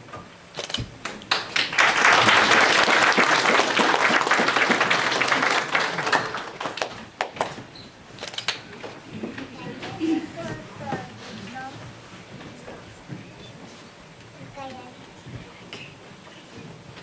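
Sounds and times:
audience applauding: 0:01.0 - 0:07.6.

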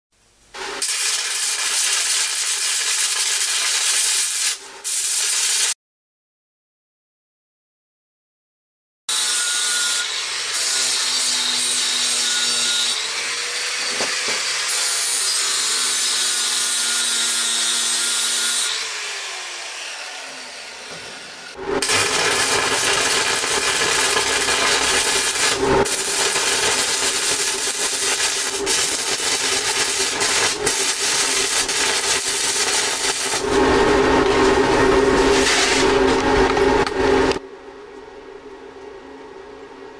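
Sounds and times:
electric arc welding crackling: 0:00.5 - 0:05.8, 0:21.6 - 0:37.4
power tool grinding steel: 0:09.1 - 0:37.4.

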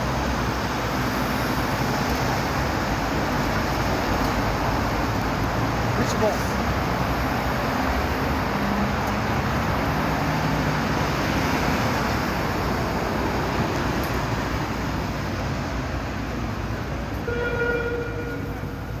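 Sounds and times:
vehicles driving past: 0:00.0 - 0:19.0.

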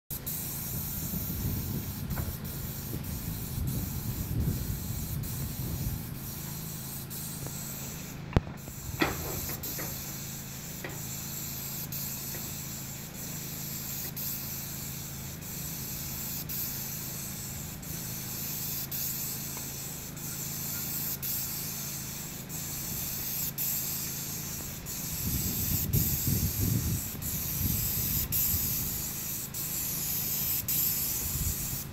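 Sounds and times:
paint spray gun hissing: 0:00.1 - 0:31.9
steady low hum: 0:00.1 - 0:31.9
sharp click: 0:08.3 - 0:10.0.

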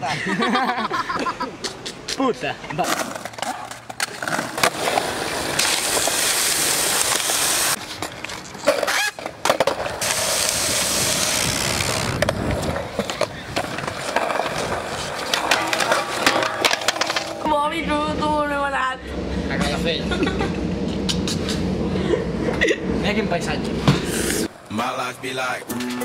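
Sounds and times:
skateboard wheels rolling: 0:02.8 - 0:17.6
skateboard clacks: 0:12.1 - 0:17.4.

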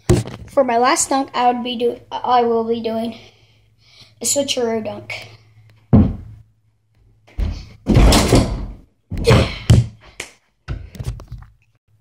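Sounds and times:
basketball hoop banging on door: 0:05.9 - 0:06.3, 0:07.4 - 0:09.9.

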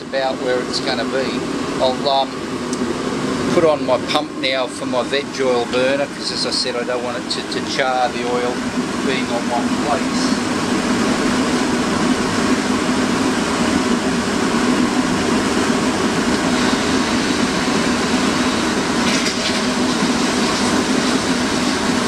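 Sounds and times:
air blower humming: 0:00.0 - 0:22.0
rush of flame: 0:08.2 - 0:22.0.

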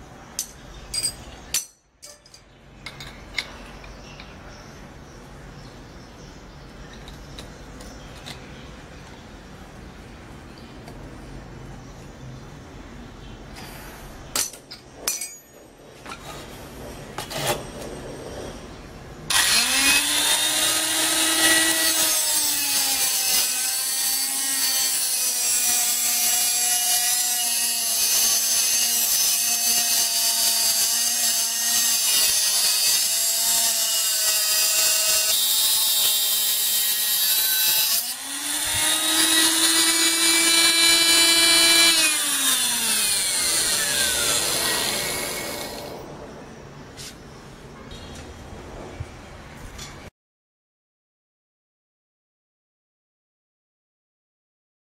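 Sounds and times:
angle grinder cutting metal: 0:19.3 - 0:46.0.

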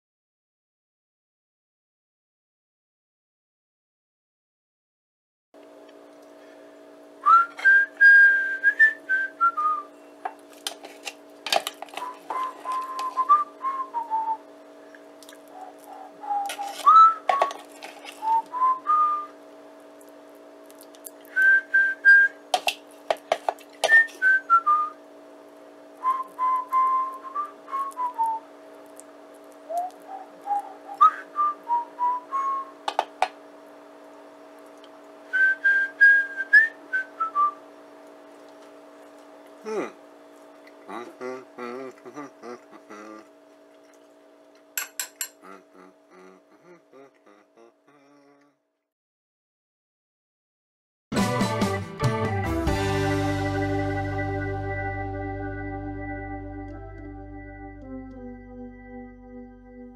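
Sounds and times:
whistled melody: 0:07.2 - 0:10.0, 0:12.0 - 0:14.4, 0:16.2 - 0:17.5, 0:18.2 - 0:19.3, 0:23.9 - 0:25.0, 0:26.0 - 0:28.5, 0:29.7 - 0:32.8, 0:35.3 - 0:37.6, 0:51.2 - 0:59.9
steady low drone: 0:52.2 - 0:59.9.

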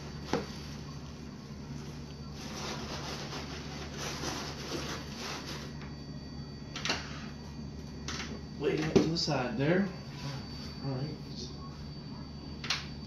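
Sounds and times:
shredded paper rustling in a box: 0:01.8 - 0:05.7.

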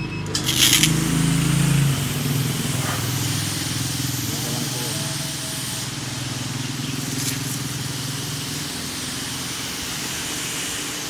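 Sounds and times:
pressure washer pump hum: 0:00.0 - 0:11.0
water jet hissing on concrete: 0:00.4 - 0:11.0.

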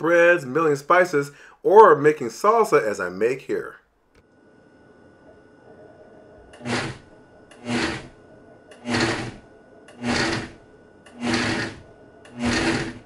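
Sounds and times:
blender pulsing: 0:06.4 - 0:13.0.

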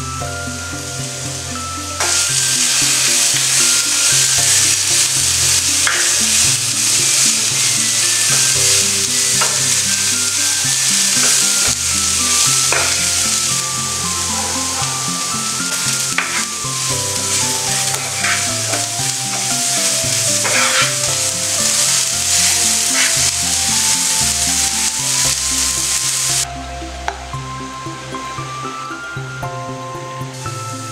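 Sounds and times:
vegetables sizzling in a pan: 0:00.0 - 0:26.5, 0:27.3 - 0:30.9
wooden spatula scraping pan: 0:02.0 - 0:13.4, 0:14.2 - 0:26.4.

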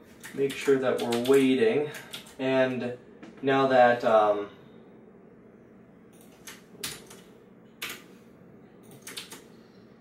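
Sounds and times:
keyboard keys clicking: 0:08.8 - 0:09.5.

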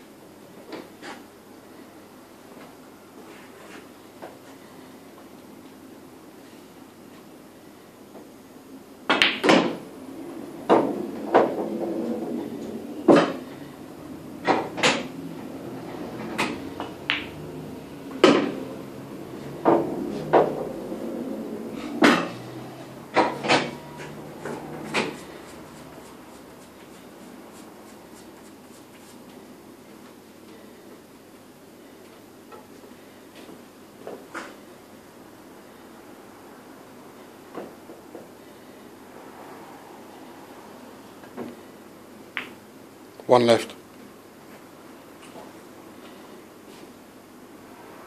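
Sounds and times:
pool balls clacking: 0:09.1 - 0:09.9, 0:10.6 - 0:13.7, 0:14.3 - 0:28.9
balls rolling rumble: 0:09.2 - 0:29.4.

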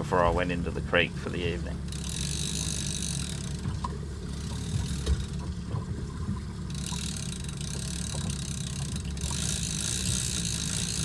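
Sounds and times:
boat engine low rumble: 0:00.0 - 0:11.0
wind: 0:00.0 - 0:11.0
faint clicks and knocks: 0:02.7 - 0:11.0.

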